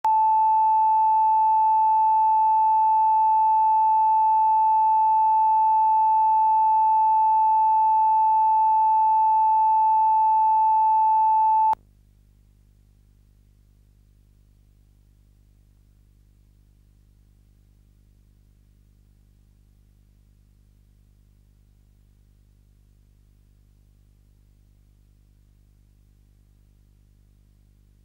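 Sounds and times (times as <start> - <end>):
steady reference tone beep: 0.1 - 11.8.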